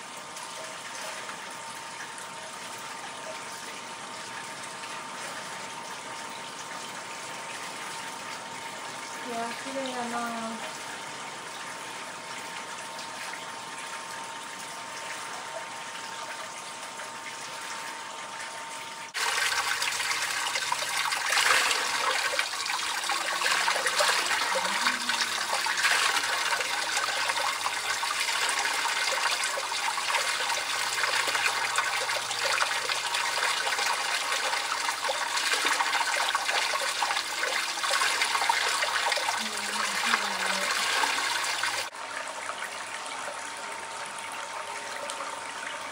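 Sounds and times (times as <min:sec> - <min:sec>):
water overflowing a tub: 0:00.0 - 0:45.9.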